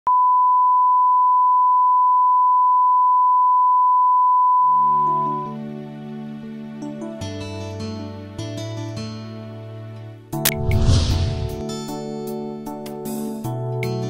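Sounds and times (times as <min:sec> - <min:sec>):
soft music with held notes: 0:05.0 - 0:10.5, 0:11.6 - 0:14.0.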